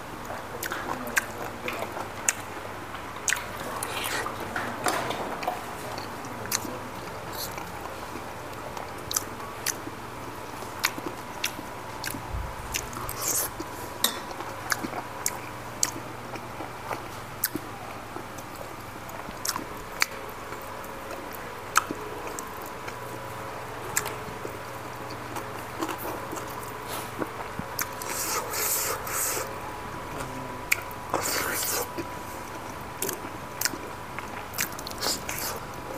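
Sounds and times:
faint steady hum: 0:00.0 - 0:35.9
person chewing and biting: 0:10.8 - 0:17.6, 0:25.1 - 0:29.5, 0:30.7 - 0:35.6.

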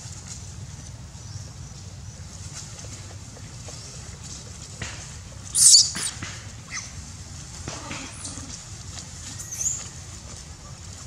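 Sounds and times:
monkey squealing: 0:05.5 - 0:06.9.

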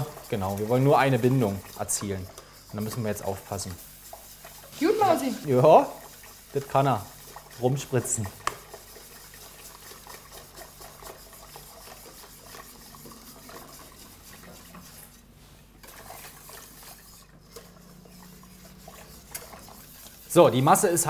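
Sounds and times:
liquid swishing in a pot: 0:00.0 - 0:21.0.

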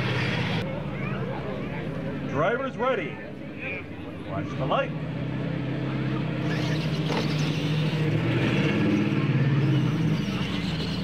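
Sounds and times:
toy trucks racing on gravel: 0:06.2 - 0:11.0.

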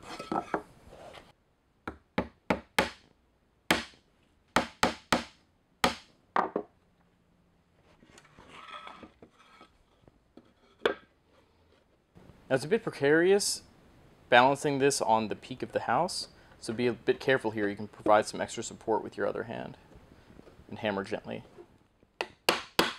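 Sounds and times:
hammer driving nails into wood: 0:03.7 - 0:04.0, 0:04.6 - 0:06.1, 0:22.2 - 0:22.9.

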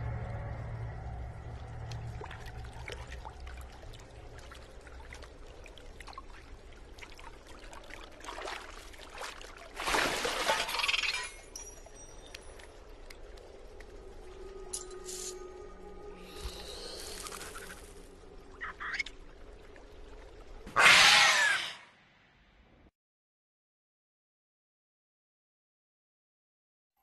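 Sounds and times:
cave water dripping: 0:00.0 - 0:20.8
rush of pouring water: 0:01.0 - 0:12.8
monkey splashing in water: 0:08.2 - 0:10.9.

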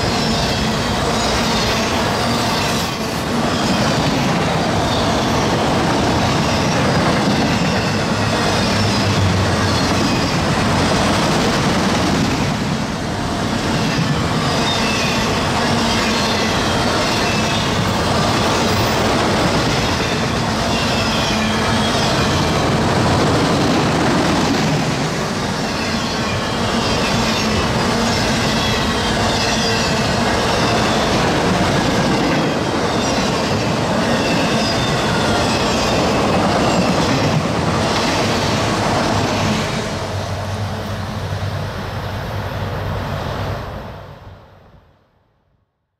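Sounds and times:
freight train wheels rumbling: 0:00.0 - 0:44.6.

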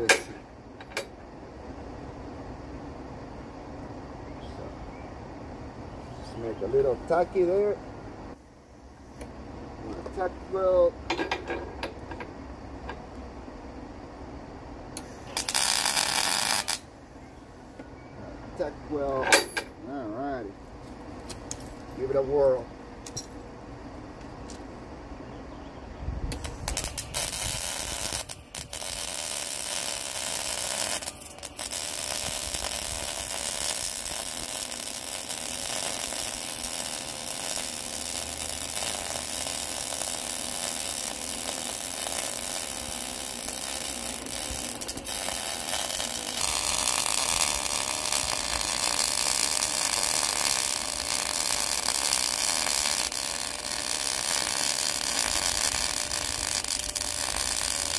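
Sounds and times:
arc welding crackle and sizzle: 0:00.0 - 0:01.2, 0:06.3 - 0:07.8, 0:09.0 - 0:13.3, 0:14.9 - 0:17.0, 0:26.2 - 0:57.9.

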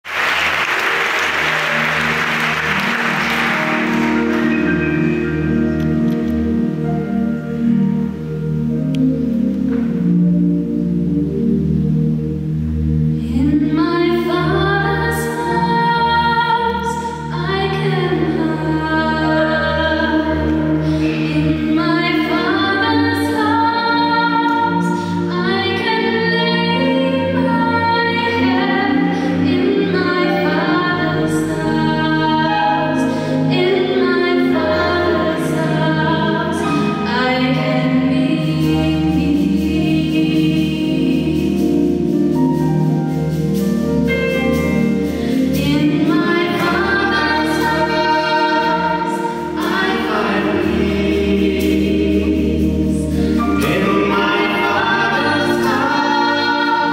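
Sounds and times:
low backing chords: 0:00.0 - 0:56.9
woman singing gospel song: 0:13.2 - 0:41.6, 0:45.4 - 0:56.9.

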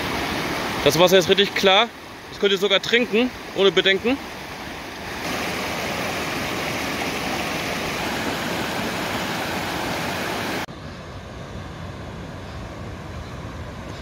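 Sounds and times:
stream rushing over rocks: 0:00.0 - 0:10.7.

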